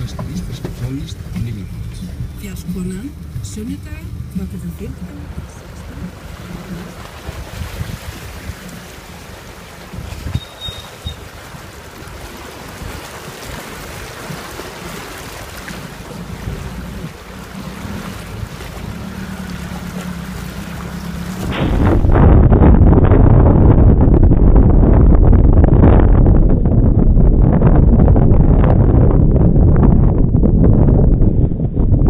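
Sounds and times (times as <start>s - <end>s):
water rushing around wheels: 0.0s - 22.3s
car engine running low: 0.0s - 32.0s.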